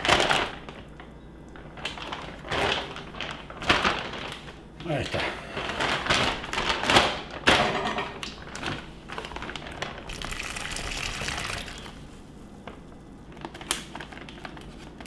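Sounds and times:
liquid pouring into a bag: 0:00.0 - 0:07.6, 0:08.4 - 0:12.1
plastic bag crinkling: 0:00.0 - 0:07.6, 0:08.2 - 0:15.0.

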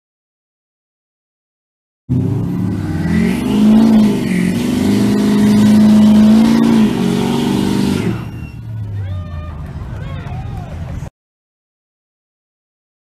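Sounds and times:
car engine revving hard: 0:02.1 - 0:08.5.

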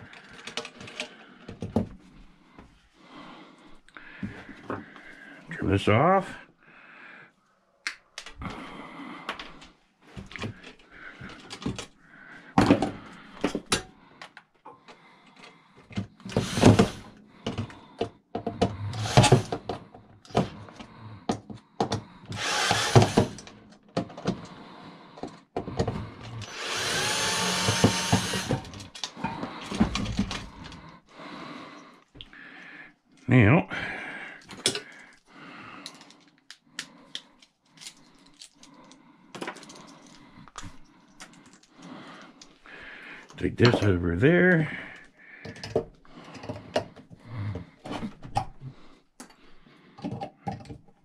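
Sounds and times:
parts and tools clattering: 0:00.0 - 0:02.0, 0:10.2 - 0:14.4, 0:27.4 - 0:30.8, 0:34.4 - 0:35.2, 0:39.3 - 0:41.7
cordless drill running: 0:16.2 - 0:17.1, 0:18.9 - 0:19.5, 0:22.4 - 0:23.4, 0:26.4 - 0:28.8.

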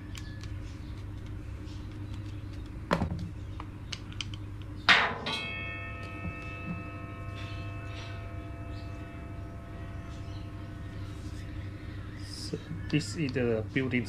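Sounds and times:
steady low hum: 0:00.0 - 0:14.0
ringing tone: 0:05.3 - 0:11.7.

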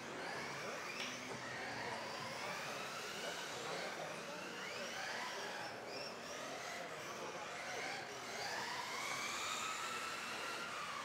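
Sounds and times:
rc buggy motors whining: 0:00.0 - 0:11.0.

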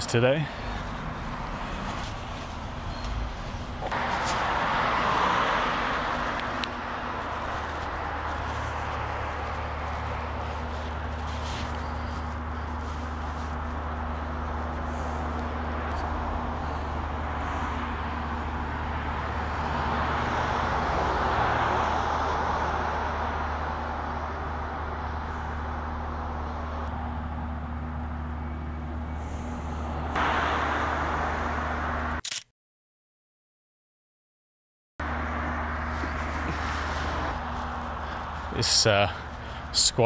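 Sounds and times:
low hum: 0:00.0 - 0:21.2, 0:22.2 - 0:32.2
car passing: 0:00.0 - 0:32.2, 0:35.0 - 0:40.0
road traffic noise: 0:00.0 - 0:32.4, 0:35.0 - 0:40.0.

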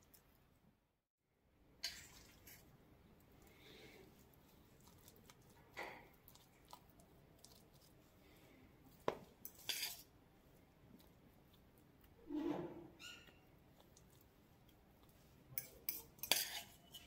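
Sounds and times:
utensil spreading filling on bread: 0:01.8 - 0:12.3, 0:13.0 - 0:17.0.

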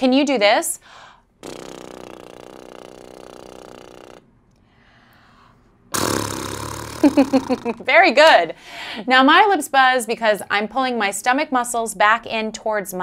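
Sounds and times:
rough breathy sound: 0:00.8 - 0:06.9
woman's lip trill: 0:01.4 - 0:04.3, 0:05.9 - 0:07.9.

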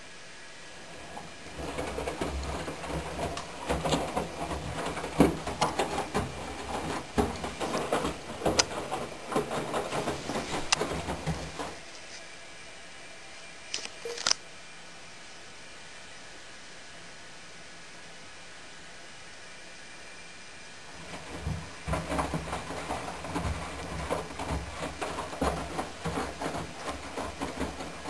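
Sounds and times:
washing machine motor hum: 0:00.5 - 0:12.9, 0:20.8 - 0:28.0
water sloshing: 0:00.8 - 0:12.1, 0:20.9 - 0:28.0
thuds in washing drum: 0:01.0 - 0:11.9, 0:20.9 - 0:28.0.

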